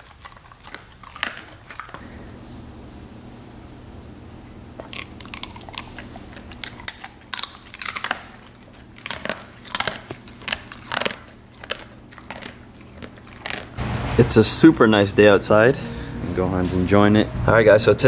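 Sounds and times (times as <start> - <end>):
dog crunching and chewing treat: 0.0 - 2.1, 4.8 - 13.8.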